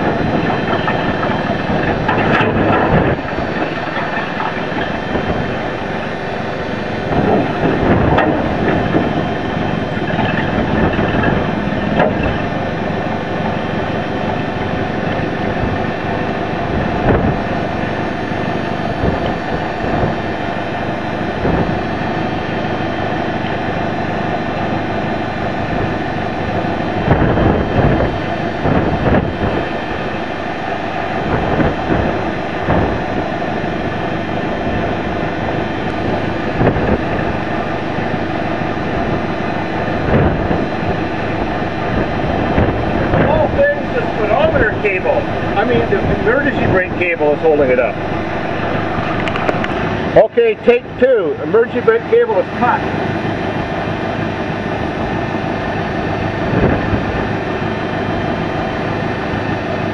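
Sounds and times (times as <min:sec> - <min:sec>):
machine engine running: 0:00.0 - 0:59.9
metal knocks and clanks: 0:07.2 - 0:09.2, 0:10.0 - 0:12.5.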